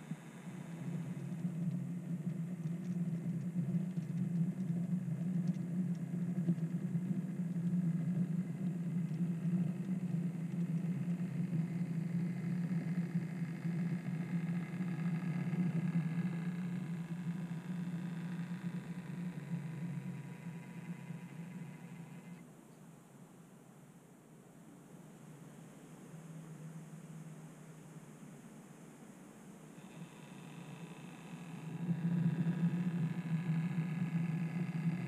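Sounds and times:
faint ticks: 0:00.0 - 0:22.9, 0:29.7 - 0:35.0
model train hum: 0:09.0 - 0:22.4, 0:29.8 - 0:35.0.

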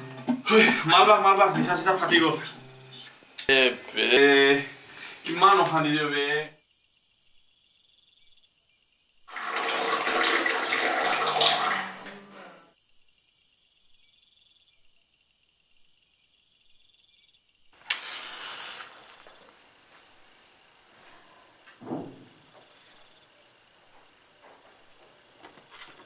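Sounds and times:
water rushing from tap: 0:09.3 - 0:12.4
match being struck: 0:17.8 - 0:20.1.

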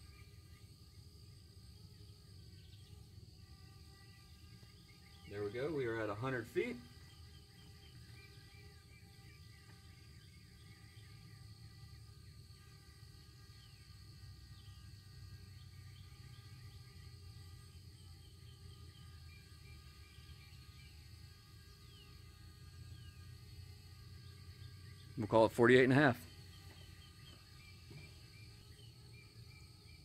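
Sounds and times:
faint bird chirps: 0:13.5 - 0:30.0.

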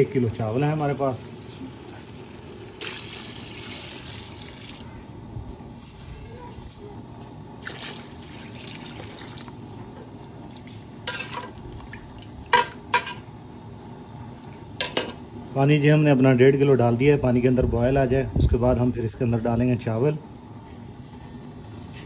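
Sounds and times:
water pouring into a metal pot: 0:01.9 - 0:05.1, 0:07.6 - 0:09.7.

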